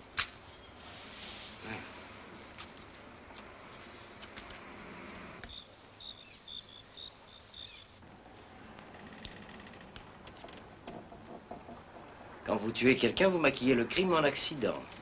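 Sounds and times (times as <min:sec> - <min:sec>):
steady hiss: 0:00.0 - 0:03.2
crickets chirping: 0:05.4 - 0:08.0
faint rapid insect trill: 0:05.4 - 0:08.0.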